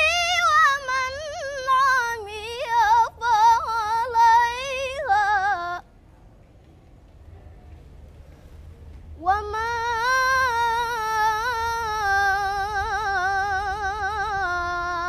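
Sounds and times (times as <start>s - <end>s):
girl reciting melodically: 0.0s - 5.9s, 9.2s - 15.0s.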